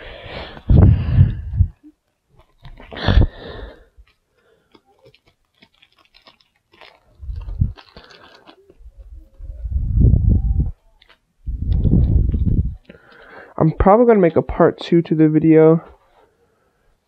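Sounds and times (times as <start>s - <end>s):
foil wrapper crinkling and tearing: 1.8s - 9.4s, 11.0s - 11.9s, 12.8s - 13.5s.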